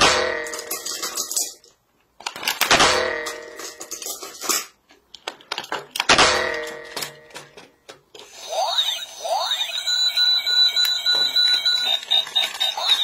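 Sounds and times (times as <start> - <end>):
toy robot electronic sound effects: 8.2 - 13.0.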